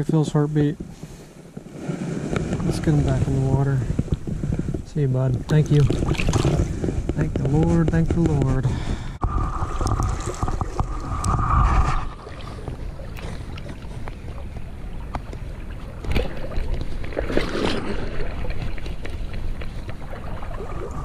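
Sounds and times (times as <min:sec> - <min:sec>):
wind rumbling on microphone: 0:00.0 - 0:21.0
flowing creek: 0:09.2 - 0:21.0.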